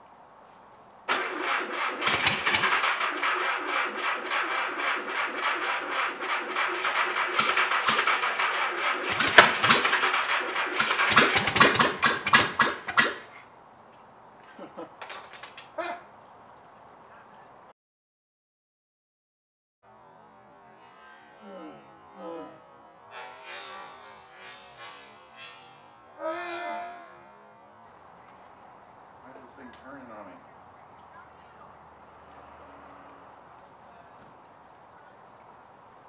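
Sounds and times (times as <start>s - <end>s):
car engine running rough: 1.1s - 13.4s.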